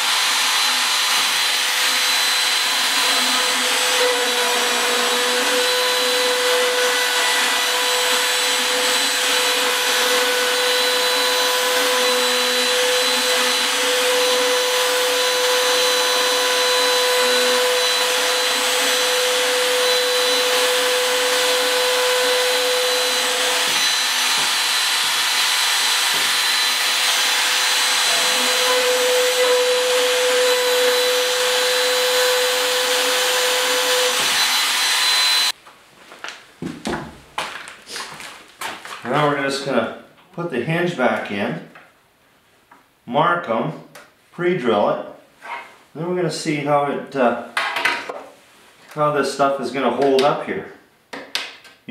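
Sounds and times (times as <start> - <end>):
router whining while cutting: 0.0 - 35.6.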